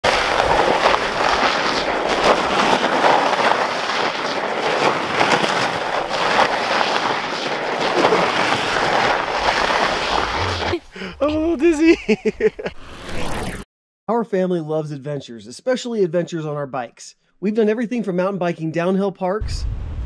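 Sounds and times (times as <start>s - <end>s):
bike tyres crunching on snow: 0.0s - 13.6s.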